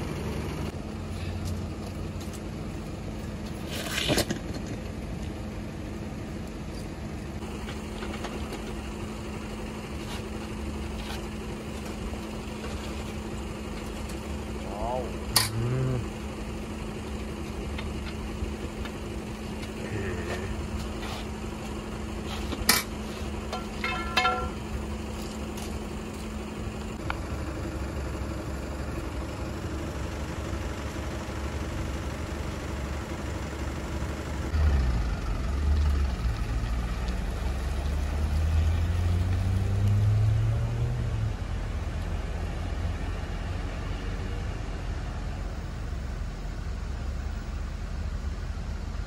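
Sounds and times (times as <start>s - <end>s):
truck engine idling: 0.0s - 38.9s, 41.0s - 49.0s
truck pulling away under load: 0.0s - 49.0s
metal clanks of tow gear: 22.5s - 24.7s.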